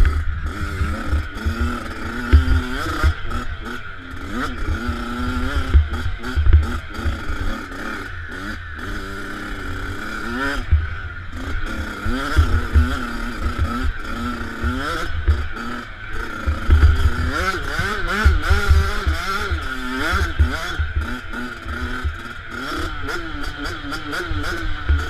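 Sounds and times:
low rumble of wind and bumps: 0.0 - 7.7
motocross bike engine revving: 0.0 - 25.0.

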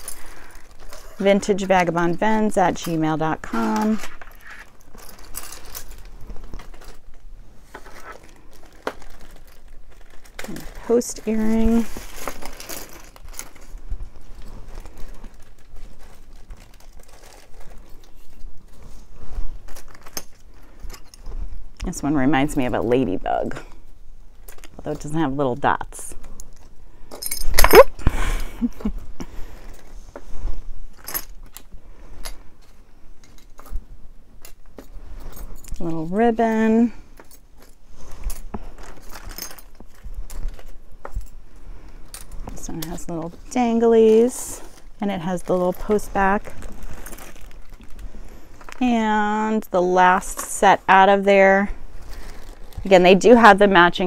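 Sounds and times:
earrings clicking and clinking: 0.0 - 7.2, 26.3 - 28.0, 30.9 - 48.8
earrings rustling in fingers: 0.0 - 25.1, 26.1 - 53.9.

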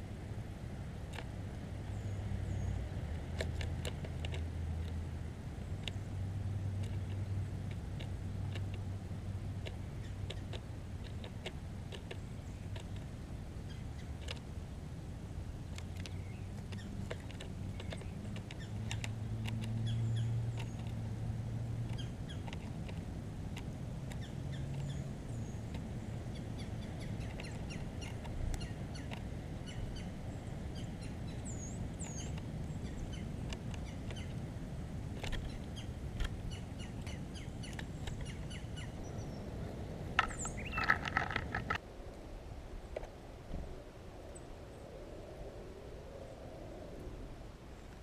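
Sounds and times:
songbirds calling: 0.0 - 41.8
sharp clicks: 15.7 - 21.1, 21.8 - 30.1, 40.2 - 41.8
harsh repeated bird calls: 23.6 - 41.8.

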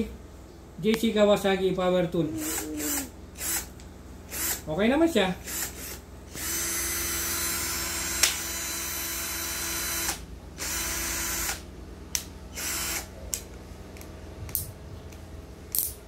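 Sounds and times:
cordless drill motor running: 2.4 - 4.7, 5.4 - 11.7, 12.5 - 13.2.

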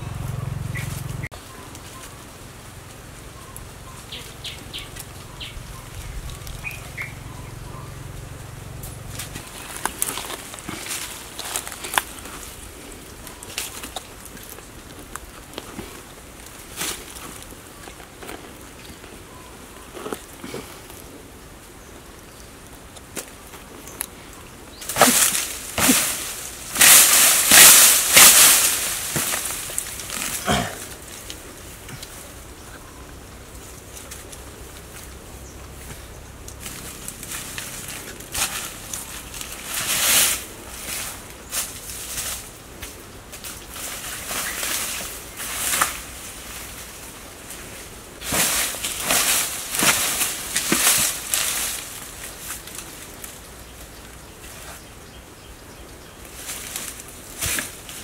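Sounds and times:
dry leaves crunching and rustling: 0.0 - 21.8, 22.6 - 58.0
wood and fibre tearing: 9.0 - 18.7, 24.8 - 31.4, 43.4 - 53.4.

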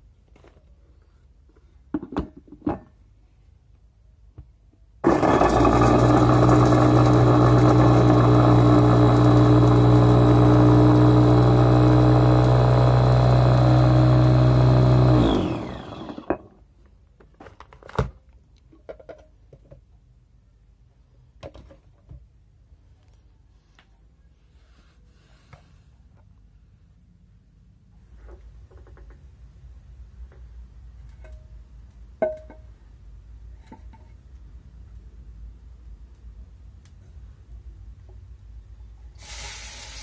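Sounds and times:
food chopper motor running: 5.0 - 16.5.

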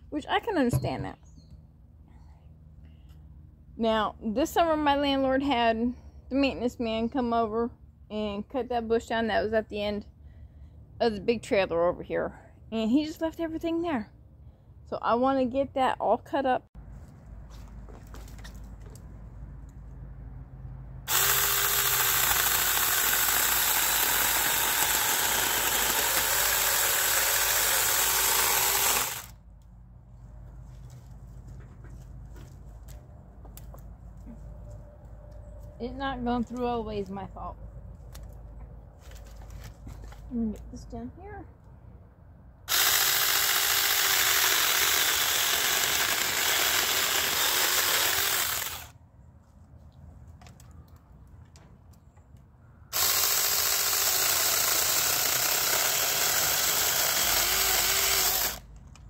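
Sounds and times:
electric chainsaw cutting branch: 21.1 - 29.4, 42.7 - 48.9, 52.9 - 58.7.

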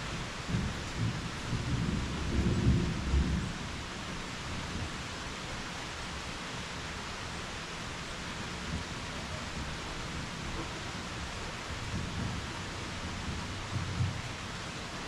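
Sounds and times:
heavy rain: 0.0 - 15.0
thunder rumbling: 0.5 - 4.1.

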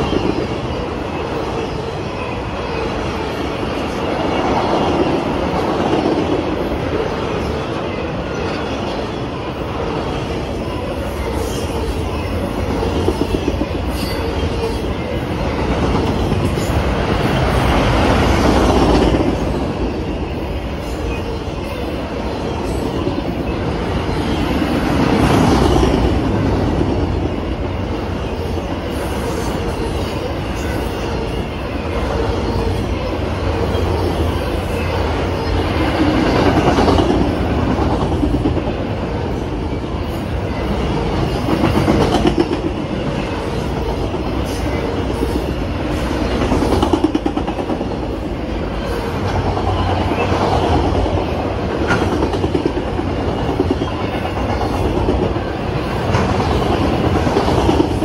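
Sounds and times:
train rumble: 0.0 - 58.0
train wheels clacking: 40.8 - 48.2, 48.9 - 58.0.

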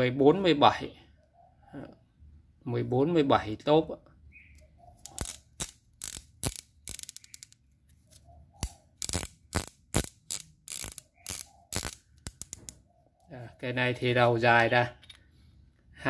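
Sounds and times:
metal spanners clinking: 5.0 - 7.6, 8.6 - 12.8.

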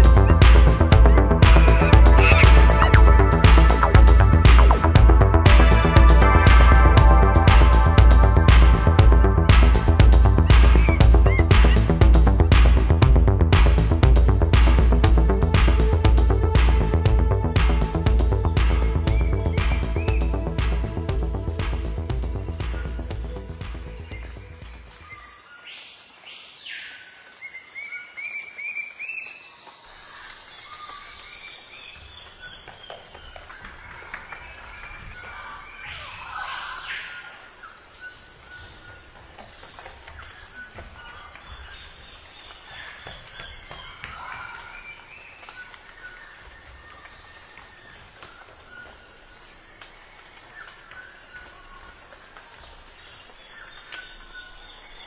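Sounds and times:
insect calls: 9.6 - 13.0, 17.7 - 55.0
bird-like chirps: 10.4 - 12.6.

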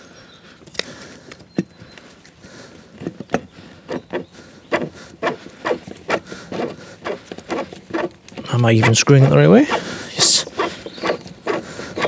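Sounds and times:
short scraping ticks: 9.7 - 12.0.

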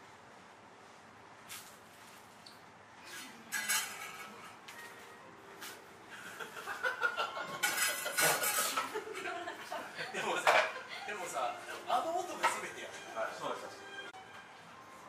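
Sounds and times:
dishes and utensils clinking: 3.0 - 5.0, 7.2 - 9.1, 10.3 - 10.9, 12.2 - 13.1.

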